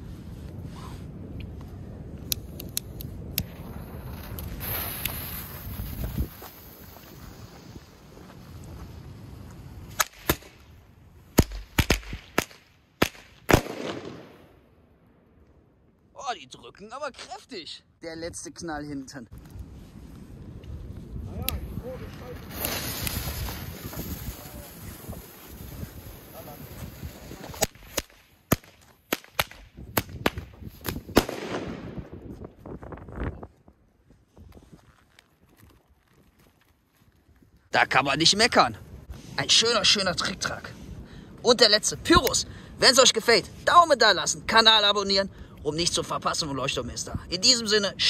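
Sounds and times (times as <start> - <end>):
firecracker fuse fizzing: 3.4 - 10.6, 22.0 - 29.6
firecracker bangs: 11.4 - 14.4, 27.5 - 32.0.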